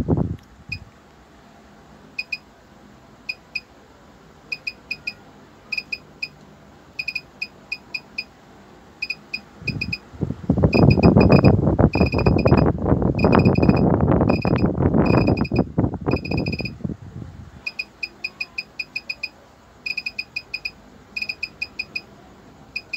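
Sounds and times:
high electronic beeps: 2.2 - 2.4, 4.5 - 6.3, 7.0 - 8.3, 9.0 - 10.0, 10.7 - 16.7, 17.7 - 19.3, 19.9 - 22.1.

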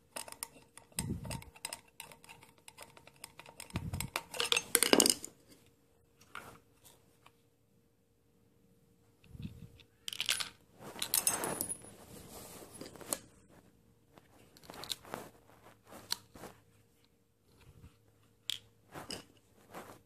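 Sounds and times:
plastic parts clicking and scraping: 0.0 - 7.0, 14.4 - 15.1.

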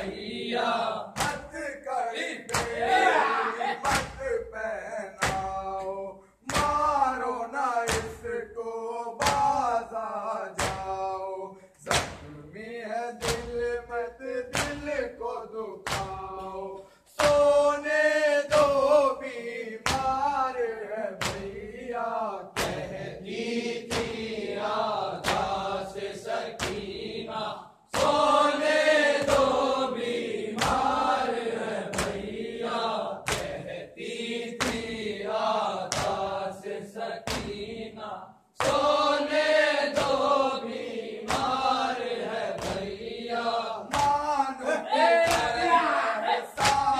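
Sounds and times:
men chanting in unison: 0.0 - 46.9.

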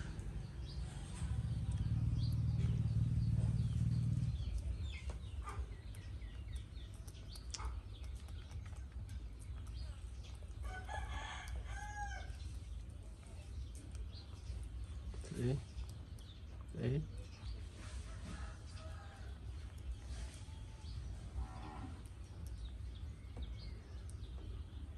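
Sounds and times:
low hum: 0.0 - 10.6
small birds chirping: 0.0 - 24.9.

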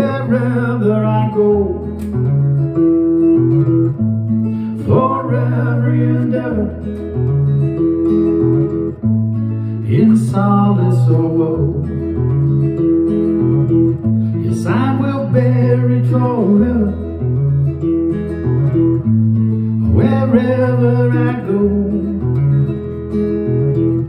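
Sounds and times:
man singing: 0.0 - 2.2, 4.8 - 6.9, 9.8 - 12.1, 14.4 - 17.2, 19.8 - 22.4
acoustic guitar chords: 0.0 - 24.0.

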